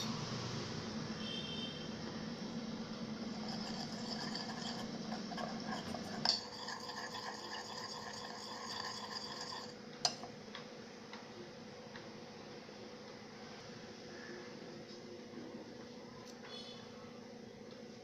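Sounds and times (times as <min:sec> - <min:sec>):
spoon stirring and scraping bowl: 0:03.3 - 0:10.2.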